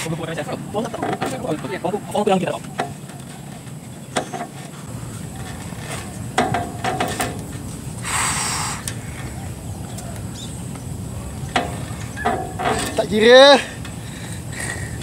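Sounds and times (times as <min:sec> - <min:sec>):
outdoor background noise: 0:00.0 - 0:15.0
short breathy hiss: 0:08.0 - 0:09.1.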